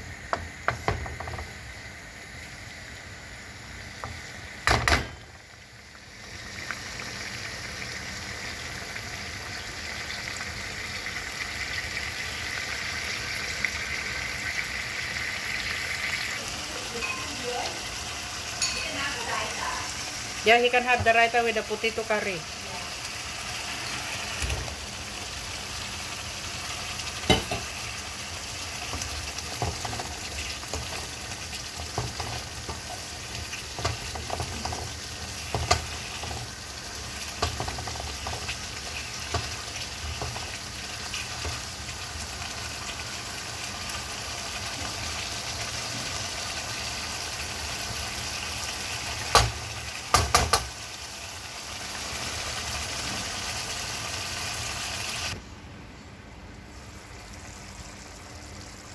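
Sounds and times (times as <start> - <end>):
curry sizzling and bubbling in a pan: 0.0 - 55.4
wooden spoon knocking against pan: 49.3 - 50.7.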